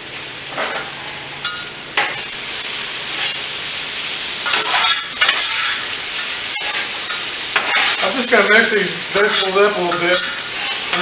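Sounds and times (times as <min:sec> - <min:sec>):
food sizzling on griddle: 0:00.0 - 0:11.0
metal spatula scraping: 0:04.4 - 0:11.0.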